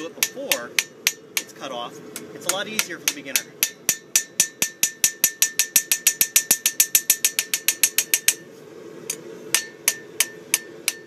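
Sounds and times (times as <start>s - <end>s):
hammer striking steel on anvil: 0.0s - 8.5s, 9.1s - 11.0s
anvil ringing: 2.5s - 8.4s, 9.5s - 11.0s.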